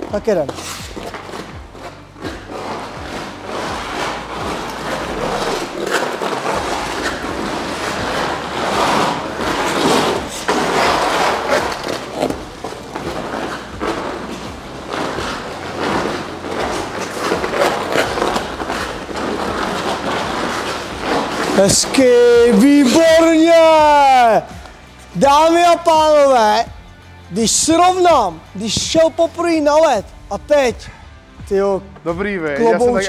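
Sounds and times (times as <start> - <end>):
skate blades scraping ice: 0.0 - 23.8.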